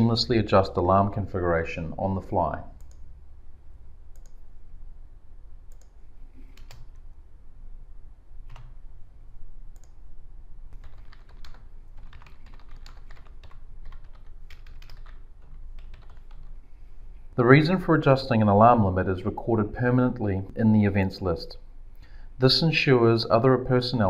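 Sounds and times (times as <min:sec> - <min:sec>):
typing on a computer keyboard: 0:06.5 - 0:07.0, 0:08.5 - 0:08.8, 0:10.7 - 0:16.6.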